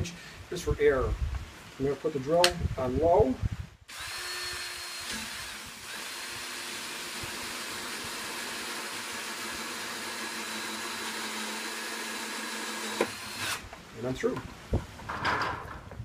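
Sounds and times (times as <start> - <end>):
drill motor whine: 3.9 - 13.6
hole saw cutting plastic: 3.9 - 13.6.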